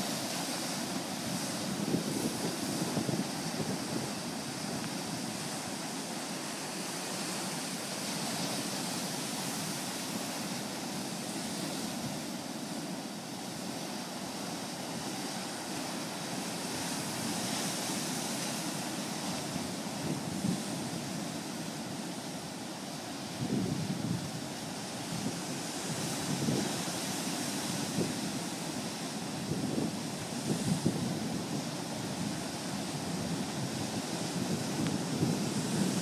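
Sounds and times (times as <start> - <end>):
ocean surf washing: 0.0 - 36.0
wind buffeting microphone: 1.3 - 5.5, 29.4 - 36.0.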